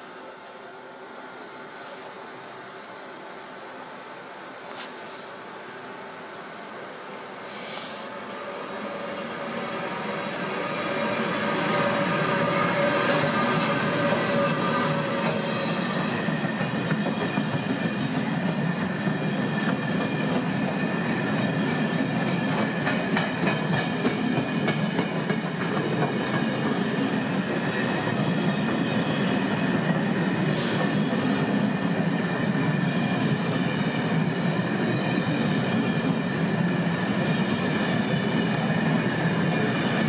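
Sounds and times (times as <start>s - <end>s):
train wheels rumbling on rails: 7.8s - 40.0s
rail clicks: 12.7s - 20.8s.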